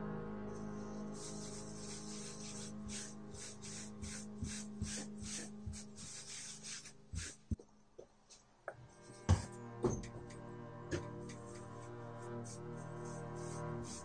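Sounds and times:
cloth rubbing leather: 0.9s - 7.6s.

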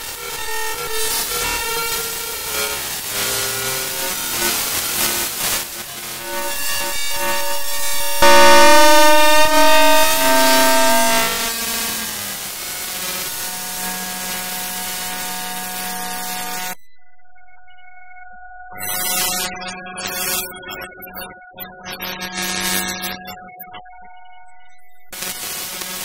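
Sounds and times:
synthesised electronic tones: 5.8s - 16.8s.

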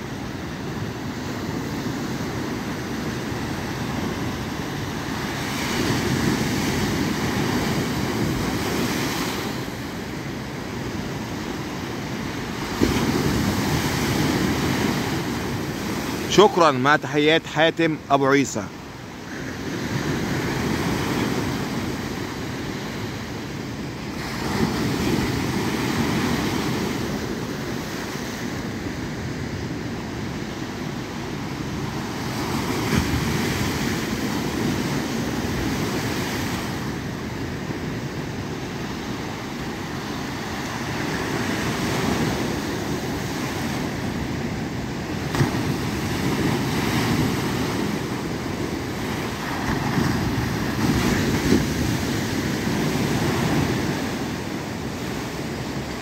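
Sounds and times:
waves breaking over rocks: 0.1s - 56.0s.

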